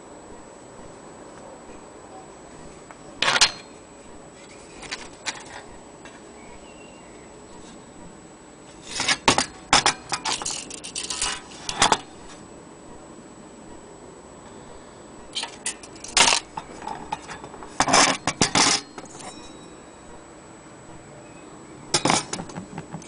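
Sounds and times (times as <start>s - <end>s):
metal parts clattering: 3.2s - 3.7s, 4.6s - 5.7s, 8.8s - 12.1s, 15.4s - 19.5s, 21.9s - 22.6s.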